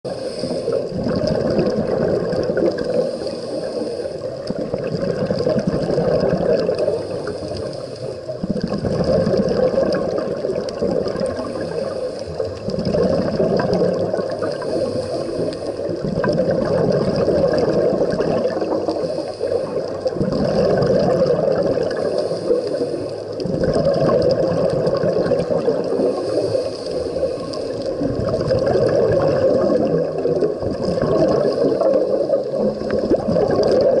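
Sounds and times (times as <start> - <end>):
underwater bubbling and gurgling: 0.0 - 34.0
regulator inhalation hiss: 0.1 - 0.9, 2.9 - 4.3, 6.8 - 8.3, 11.4 - 12.6, 14.4 - 16.0, 18.9 - 20.1, 21.9 - 23.4, 25.9 - 28.0.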